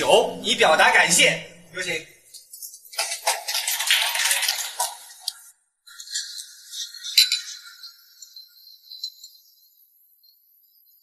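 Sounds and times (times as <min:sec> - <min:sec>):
faint high tinkling: 0:06.2 - 0:11.0
drinking glasses clinking: 0:06.8 - 0:08.0.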